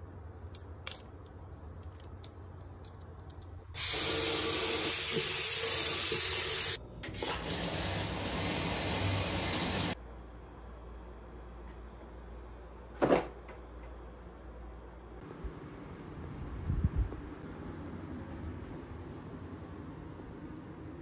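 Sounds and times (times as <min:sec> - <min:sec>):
faucet running into sink: 0:03.8 - 0:10.0.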